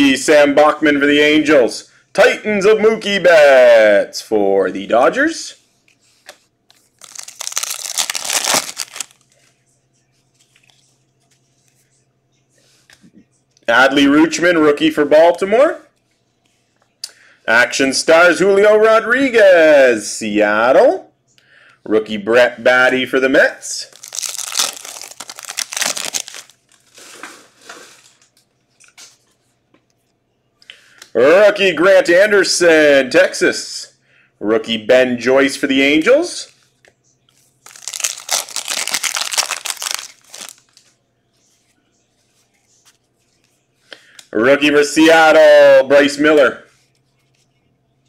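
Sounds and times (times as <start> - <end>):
cards rustling: 5.8 - 9.6, 23.8 - 28.3, 37.6 - 40.9
foil wrapper tearing open: 7.0 - 9.2, 23.9 - 27.1, 37.6 - 40.7.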